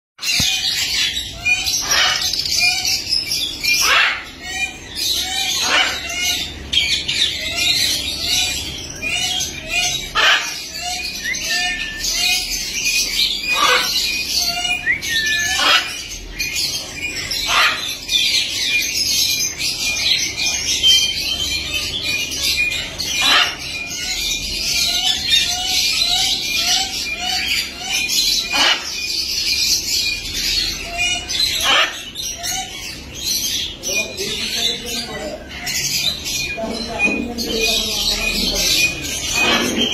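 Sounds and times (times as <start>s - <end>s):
budgerigars chattering and chirping: 0.2s - 39.9s
parrot squawking: 0.2s - 39.9s.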